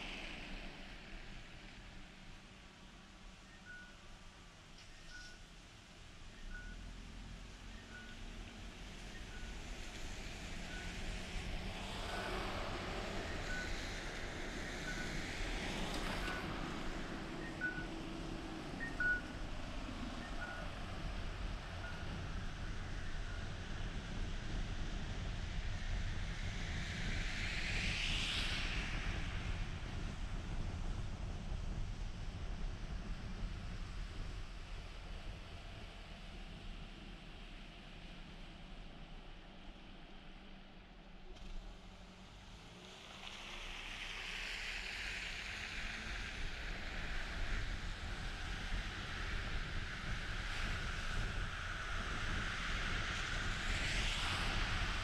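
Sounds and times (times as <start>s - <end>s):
car road rumble: 0.0s - 55.0s
passing car tyres hissing: 41.8s - 55.0s.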